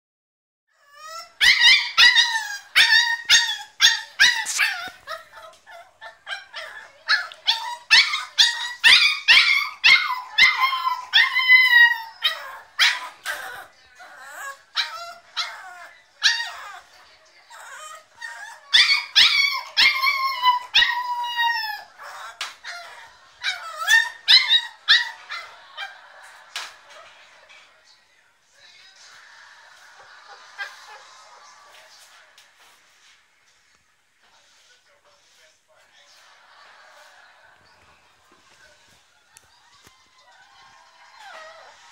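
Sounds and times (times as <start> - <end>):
puppy yelping: 0.8 - 16.9, 17.5 - 26.0.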